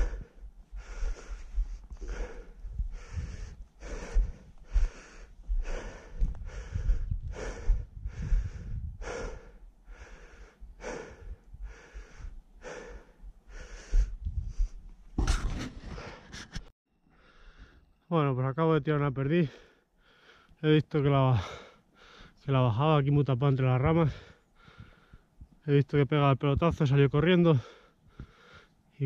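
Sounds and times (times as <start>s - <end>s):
man breathing hard: 0.0s - 14.9s, 17.1s - 17.9s, 19.4s - 20.6s, 21.3s - 22.4s, 24.0s - 25.4s, 27.5s - 28.8s.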